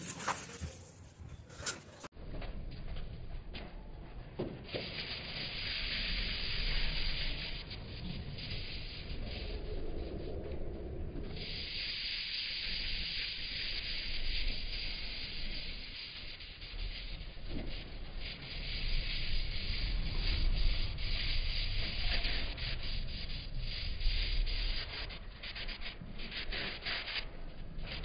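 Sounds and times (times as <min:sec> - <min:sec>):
hand scrubbing surface: 0:00.0 - 0:02.1.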